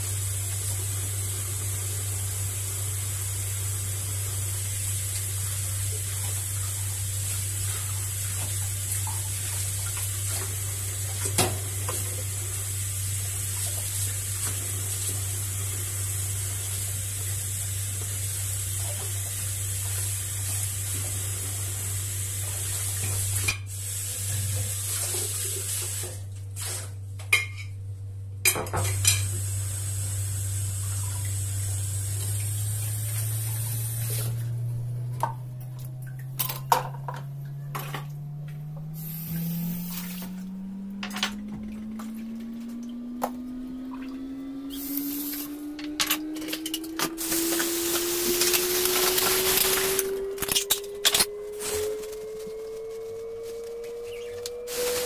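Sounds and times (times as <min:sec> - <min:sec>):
tap water running: 0:00.0 - 0:27.5, 0:28.5 - 0:55.0
low hum: 0:29.1 - 0:55.0.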